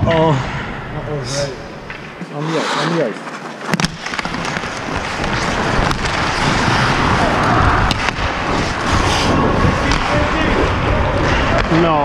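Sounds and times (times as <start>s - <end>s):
skates scraping ice: 1.8s - 12.0s
wind rumble on microphone: 5.8s - 11.6s.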